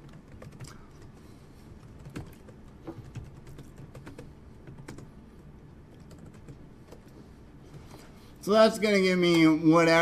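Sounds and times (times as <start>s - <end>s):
computer keyboard typing: 0.0s - 5.1s, 5.9s - 7.2s.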